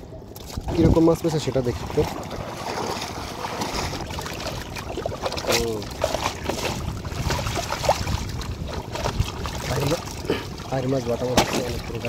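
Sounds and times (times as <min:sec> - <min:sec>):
footsteps splashing through water: 0:01.9 - 0:12.0.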